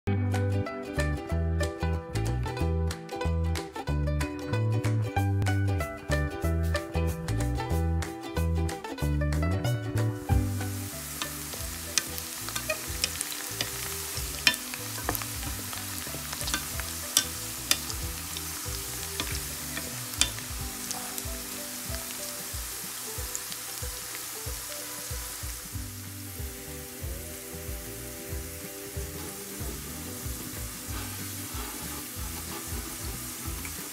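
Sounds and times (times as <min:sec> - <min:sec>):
garlic sizzling in oil: 0:10.2 - 0:33.9
wooden spatula stirring: 0:10.3 - 0:21.5, 0:30.8 - 0:33.7.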